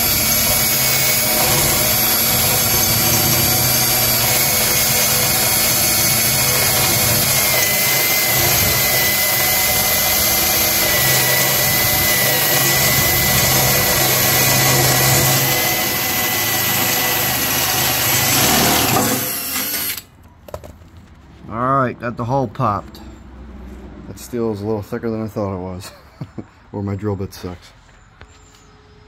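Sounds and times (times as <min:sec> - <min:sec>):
cordless drill grinding through steel: 0:00.0 - 0:20.1.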